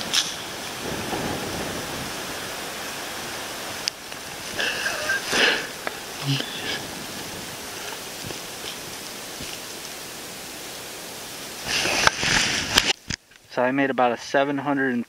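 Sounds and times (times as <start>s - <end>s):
rushing wind: 0.0s - 13.5s
short pitched sounds: 6.2s - 6.9s.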